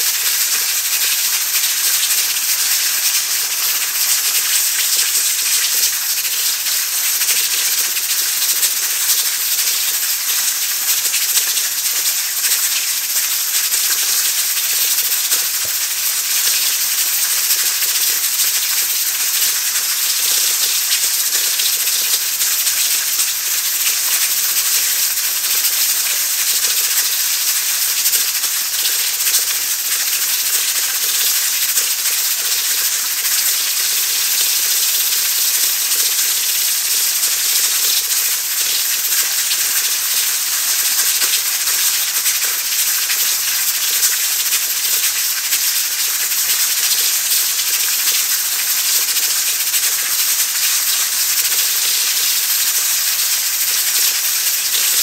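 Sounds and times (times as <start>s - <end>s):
pressure cooker steam hissing: 0.0s - 55.0s.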